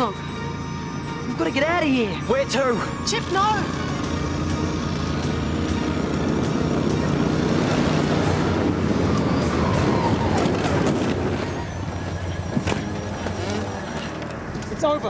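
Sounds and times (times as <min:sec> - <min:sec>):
all-terrain vehicle engines running: 0:00.0 - 0:15.0.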